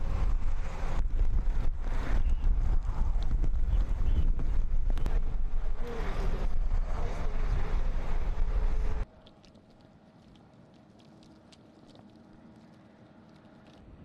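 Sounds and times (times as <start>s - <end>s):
wind rumble on microphone: 0.0s - 9.1s.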